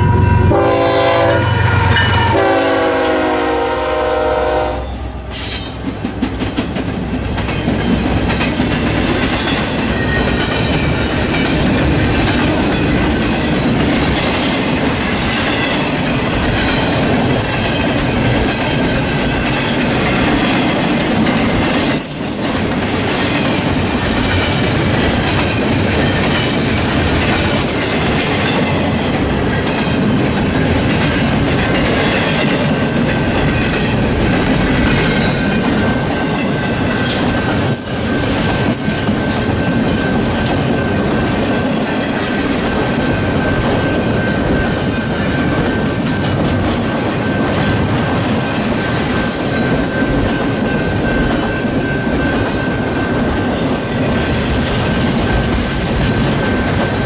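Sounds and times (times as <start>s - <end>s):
locomotive air horn: 0.0s - 5.4s
freight train rumbling past: 0.0s - 57.0s
wheels clicking over rail joints: 5.4s - 57.0s.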